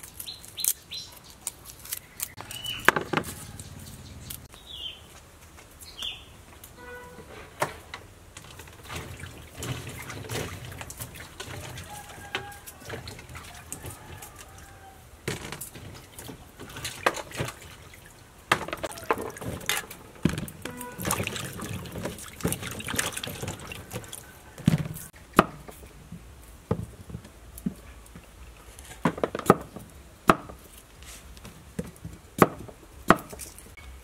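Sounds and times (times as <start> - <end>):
water splashing and dripping: 7.7 - 25.8.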